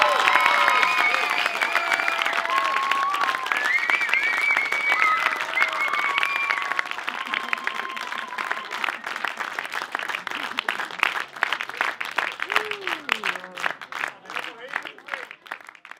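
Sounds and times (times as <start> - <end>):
crowd shouts: 0.0 - 9.0
crowd applauding: 0.0 - 15.9.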